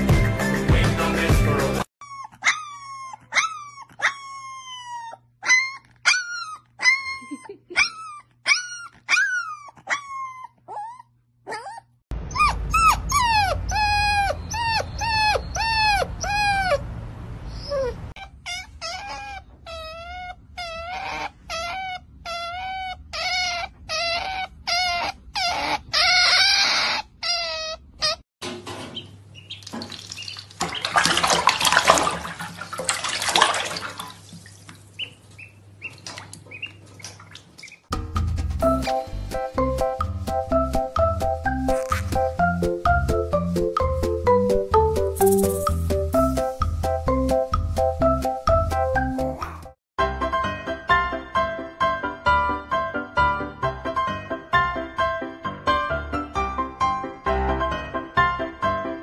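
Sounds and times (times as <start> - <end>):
puppies howling: 2.0 - 16.9, 17.6 - 28.2.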